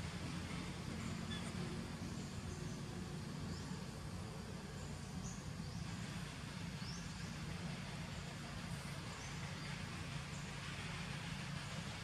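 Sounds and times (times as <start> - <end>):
faint high chirps: 1.2 - 1.7.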